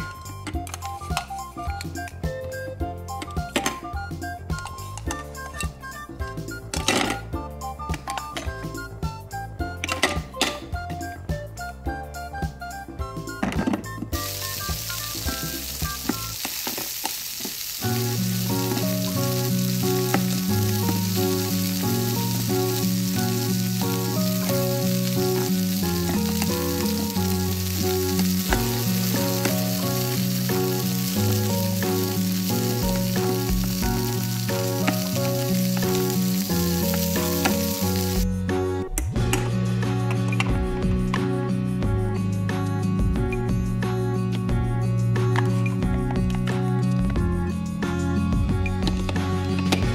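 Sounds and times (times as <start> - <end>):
cheerful tune with bass line: 0.0 - 16.4, 17.8 - 49.9
frying sizzle: 14.1 - 38.3.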